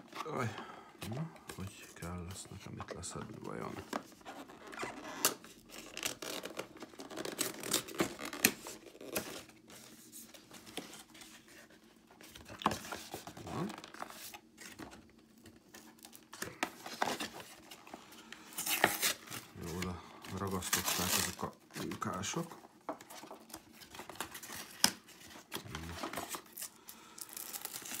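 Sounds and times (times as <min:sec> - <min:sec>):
hands tearing glued packaging: 0:25.6 - 0:28.0.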